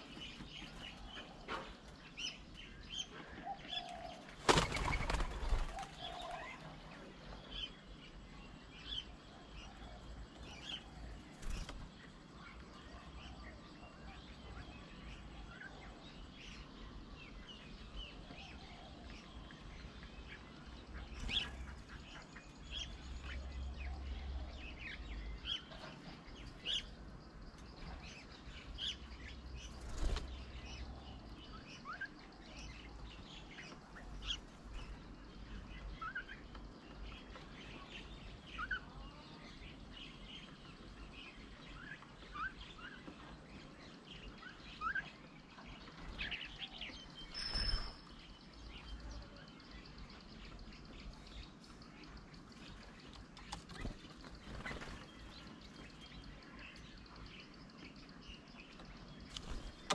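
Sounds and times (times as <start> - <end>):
birds chirping and whistling: 39.7 - 59.9.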